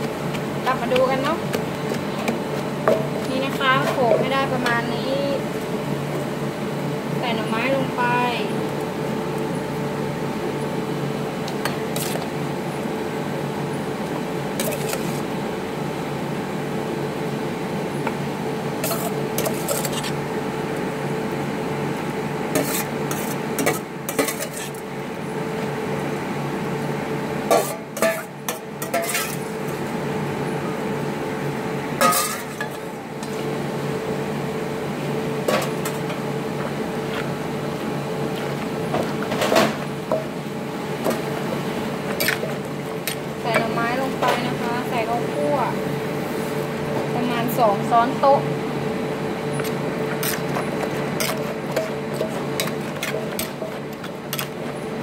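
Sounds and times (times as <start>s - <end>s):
steady hum: 0.0s - 55.0s
metal spoon scraping mortar: 18.8s - 20.2s.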